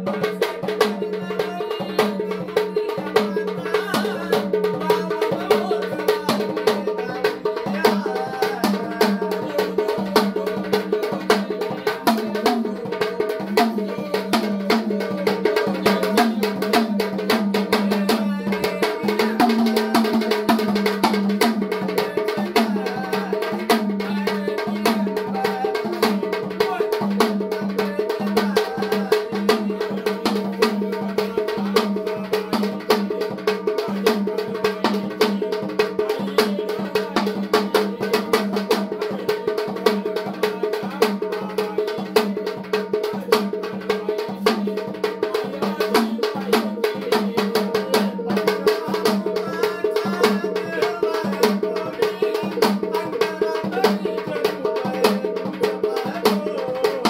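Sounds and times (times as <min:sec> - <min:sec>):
drum beaten fast: 0:00.0 - 0:57.0
man singing: 0:00.0 - 0:57.0.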